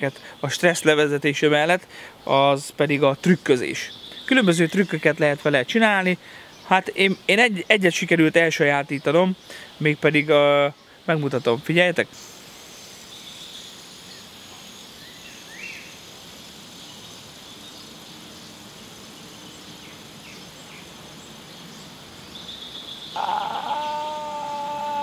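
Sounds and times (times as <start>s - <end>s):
faint bird chirps: 16.8s - 25.0s.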